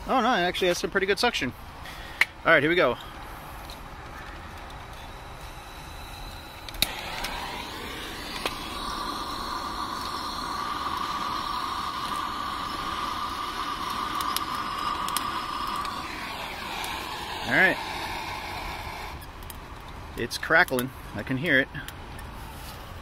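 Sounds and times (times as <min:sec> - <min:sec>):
fan rushing air: 0:00.0 - 0:23.0
flame whistling hiss: 0:01.6 - 0:21.1
lighter clicking: 0:06.4 - 0:19.6.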